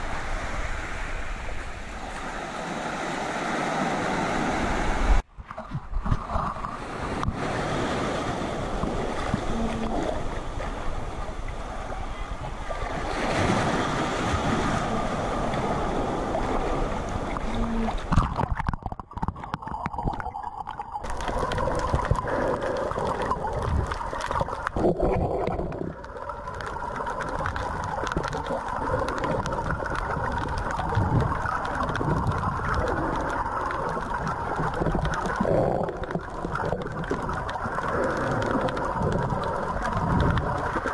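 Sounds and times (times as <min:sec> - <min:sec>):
sea water sloshing and splashing: 0:00.0 - 0:40.9
muffled underwater gurgling: 0:09.2 - 0:10.8, 0:17.2 - 0:40.9.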